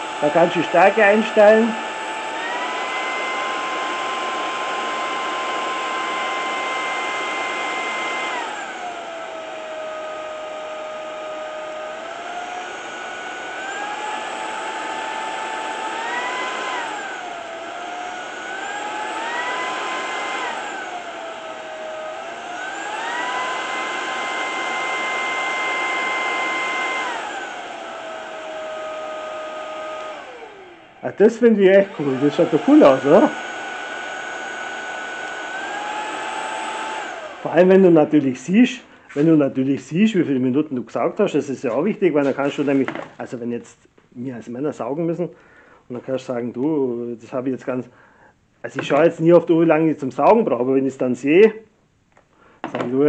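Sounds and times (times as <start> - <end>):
stick vacuum motor whine: 0.0 - 39.3, 52.6 - 53.0.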